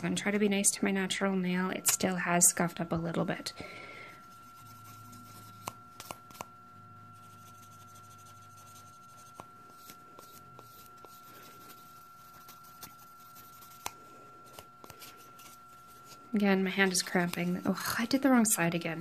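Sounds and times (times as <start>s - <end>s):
nail file rubbing: 4.3s - 6.6s, 7.2s - 17.8s.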